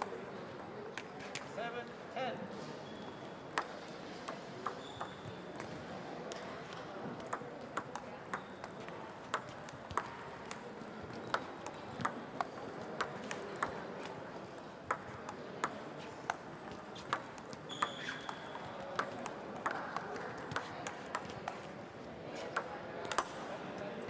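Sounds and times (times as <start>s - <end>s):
sports hall background noise: 0.0s - 24.0s
table tennis ball clicks: 3.5s - 6.5s, 7.2s - 21.7s, 22.5s - 23.4s.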